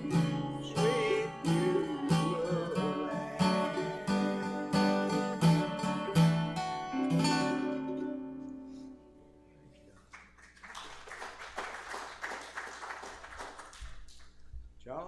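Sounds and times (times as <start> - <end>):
strummed chord ringing: 0.0 - 9.5
acoustic guitar and mandolin: 0.0 - 9.9
audience applause: 10.0 - 14.4.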